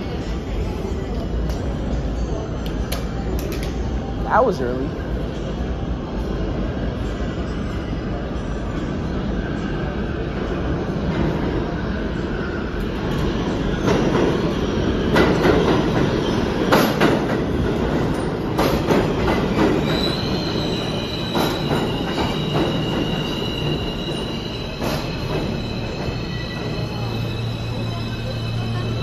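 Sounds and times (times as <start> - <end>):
subway train rumble: 0.0 - 29.0
high-pitched squeal: 19.8 - 29.0.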